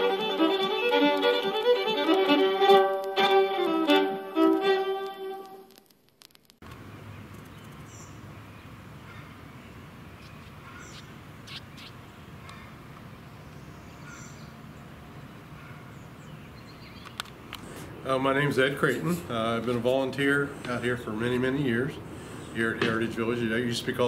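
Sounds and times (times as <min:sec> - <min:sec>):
high bird chirps: 0:10.2 - 0:12.0.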